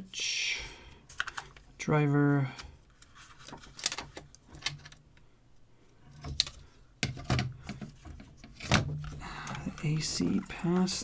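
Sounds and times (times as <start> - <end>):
plastic parts clicking and knocking: 1.1 - 1.7, 3.4 - 5.0, 6.1 - 11.0.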